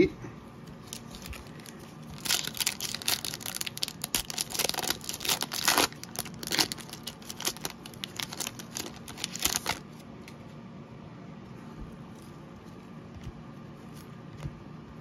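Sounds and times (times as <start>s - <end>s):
foil wrapper crinkling and tearing: 0.8s - 9.9s.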